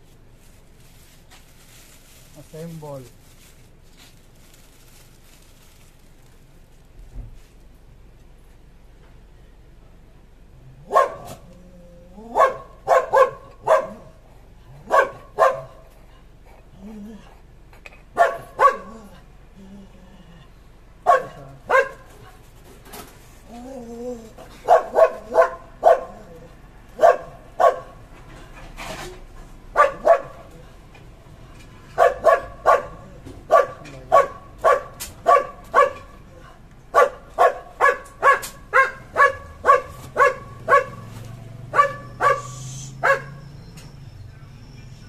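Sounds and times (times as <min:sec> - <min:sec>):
dog barking: 0:10.8 - 0:11.5, 0:12.3 - 0:14.2, 0:14.8 - 0:15.9, 0:18.2 - 0:19.1, 0:21.0 - 0:22.2, 0:24.6 - 0:26.4, 0:27.0 - 0:28.0, 0:29.7 - 0:30.5, 0:32.0 - 0:36.2, 0:36.9 - 0:41.1, 0:41.7 - 0:43.5.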